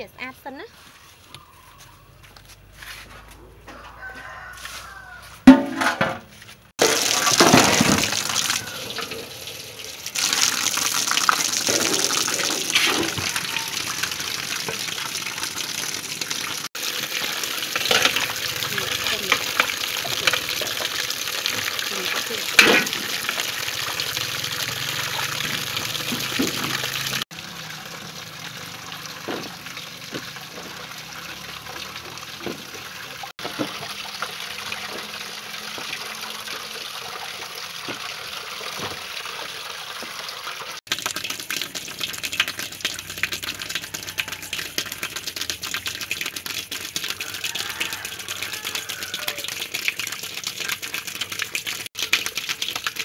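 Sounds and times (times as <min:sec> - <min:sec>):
water sloshing and splashing: 0:06.8 - 0:16.9.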